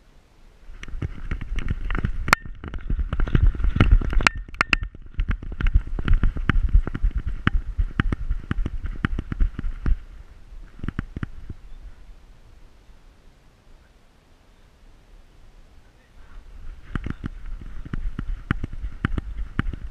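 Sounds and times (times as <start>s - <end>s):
heavy low rumble: 0.7s - 12.8s
rapid knocks and clicks: 0.8s - 10.0s, 10.7s - 11.6s, 16.8s - 19.9s.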